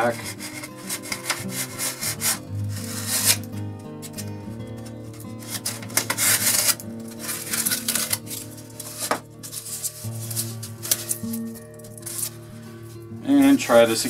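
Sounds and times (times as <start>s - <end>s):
hand sanding foam: 0.0s - 3.4s
quiet guitar music: 0.0s - 14.0s.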